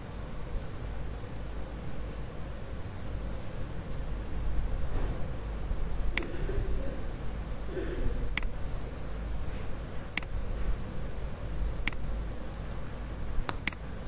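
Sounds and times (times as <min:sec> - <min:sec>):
low hum and hiss: 0:00.0 - 0:14.0
sharp clicks: 0:08.3 - 0:08.6, 0:10.1 - 0:10.4, 0:11.8 - 0:12.1, 0:13.4 - 0:13.8.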